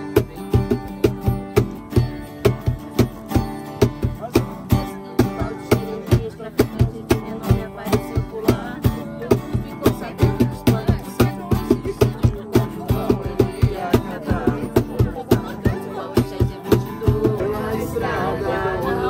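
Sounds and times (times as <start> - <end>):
cajon hand slaps: 0.0 - 17.4
acoustic guitar strumming: 0.0 - 19.0.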